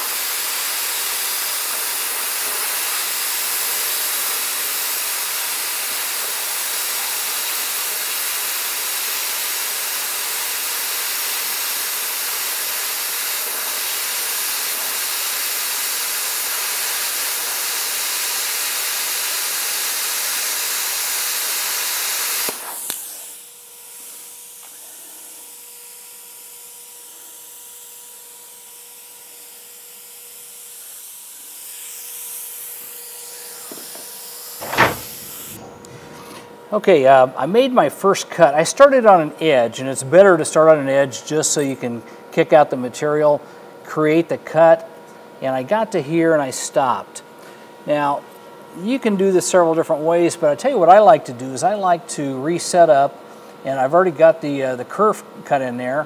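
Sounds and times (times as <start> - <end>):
plasma cutter hissing: 0.0 - 36.6
steady hum with faint tone: 30.9 - 56.0.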